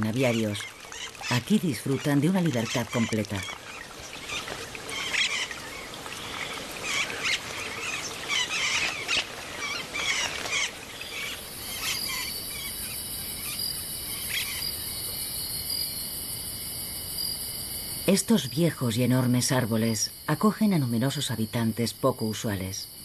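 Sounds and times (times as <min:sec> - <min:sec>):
parakeets chattering and squawking: 0:00.0 - 0:14.7
high insect chorus: 0:00.0 - 0:23.0.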